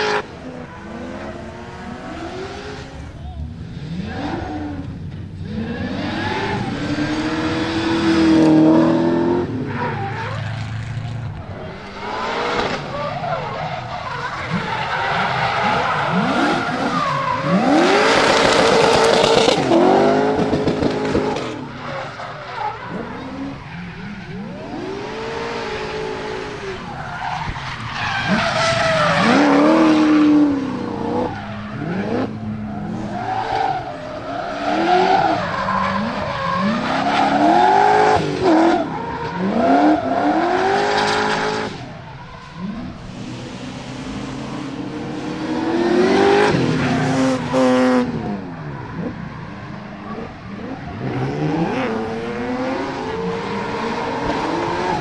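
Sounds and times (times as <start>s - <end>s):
car engine revving: 0.0s - 55.0s
tyres skidding and squealing: 0.0s - 55.0s.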